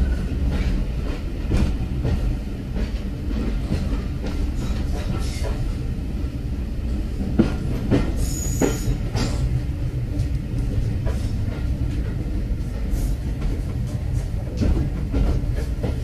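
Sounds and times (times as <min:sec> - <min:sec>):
train carriage rumble: 0:00.0 - 0:16.0.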